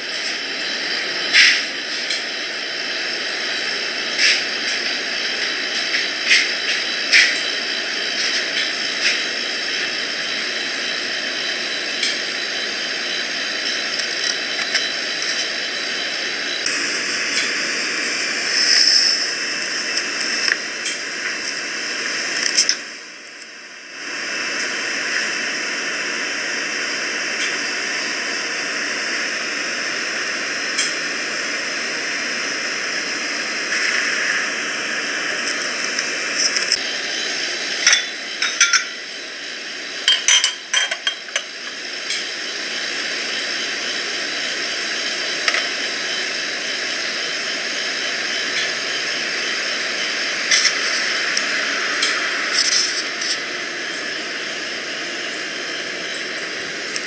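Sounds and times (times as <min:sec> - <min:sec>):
steady hiss: 0:00.0 - 0:22.9, 0:41.2 - 0:57.0
glass clinks and clicks: 0:37.8 - 0:39.0.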